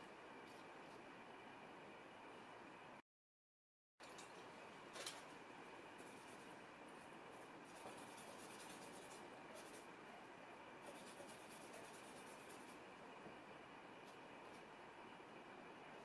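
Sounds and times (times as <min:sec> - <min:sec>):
brush scratching paint: 0:06.0 - 0:09.9, 0:10.8 - 0:12.9.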